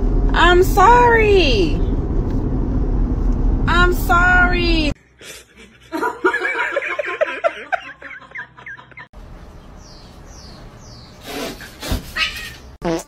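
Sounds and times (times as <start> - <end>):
cat chirping calls: 10.9 - 12.8.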